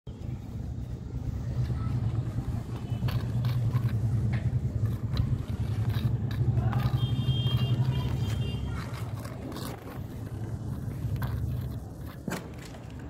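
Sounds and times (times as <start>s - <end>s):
low motor-like hum: 0.1s - 12.3s
cat clawing at leather strap: 2.7s - 12.9s.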